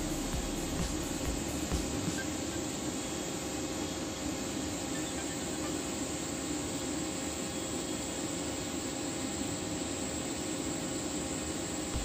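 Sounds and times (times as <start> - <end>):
welding arc hissing: 0.0 - 2.7
faint hum: 0.0 - 12.0.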